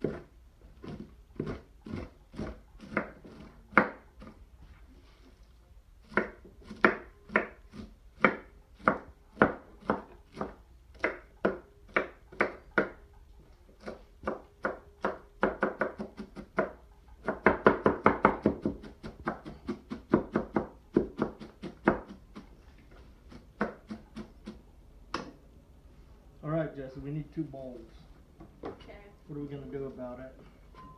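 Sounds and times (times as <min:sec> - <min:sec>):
knife chopping on wooden table: 0:00.0 - 0:04.4, 0:06.1 - 0:13.0, 0:13.8 - 0:22.4, 0:23.3 - 0:25.4.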